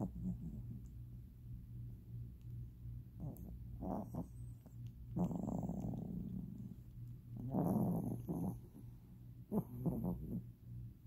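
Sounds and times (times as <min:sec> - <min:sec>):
steady low hum: 0:00.0 - 0:11.0
pet snoring breaths: 0:03.2 - 0:08.9, 0:09.5 - 0:10.5.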